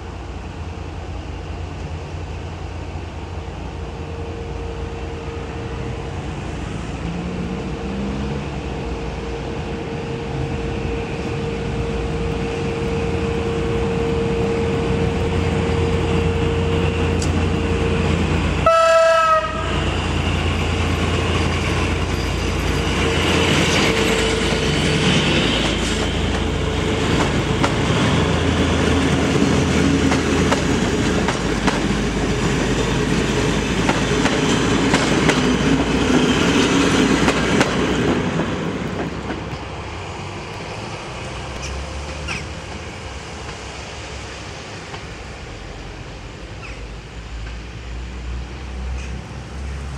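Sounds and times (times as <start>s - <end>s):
diesel locomotive passing: 0.0s - 49.9s
locomotive horn: 18.6s - 20.0s
wheels clicking over rail joints: 25.6s - 39.7s.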